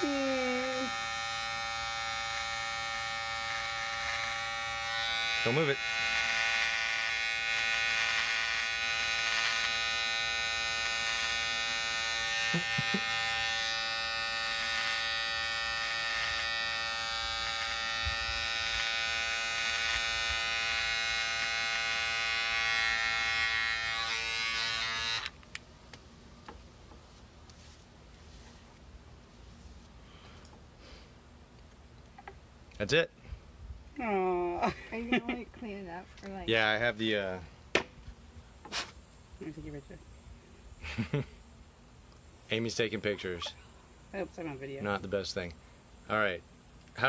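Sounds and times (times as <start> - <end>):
electric hair clipper buzzing: 0.0 - 25.5.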